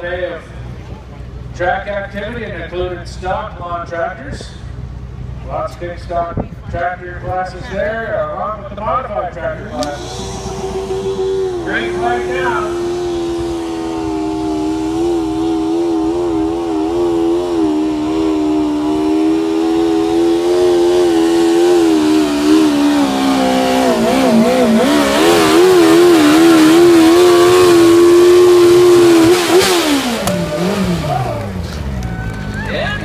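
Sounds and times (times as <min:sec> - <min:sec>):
small engine at high revs: 0:09.7 - 0:31.6.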